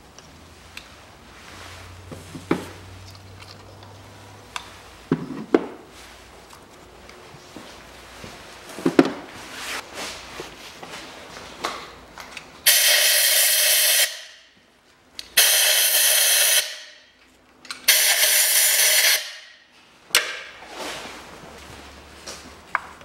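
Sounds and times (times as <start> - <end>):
compressed air blasts hissing: 12.7 - 14.3.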